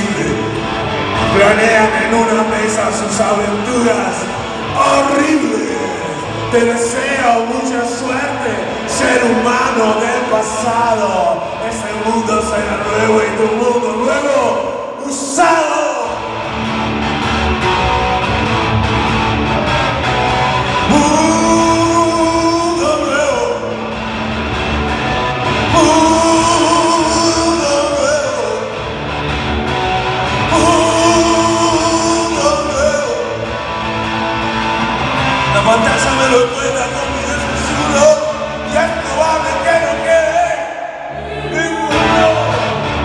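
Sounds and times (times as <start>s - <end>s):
electric guitar lead notes bending: 0.0s - 7.5s, 16.0s - 40.1s
person singing: 20.8s - 23.8s, 25.6s - 28.8s, 30.4s - 33.5s, 35.5s - 43.0s.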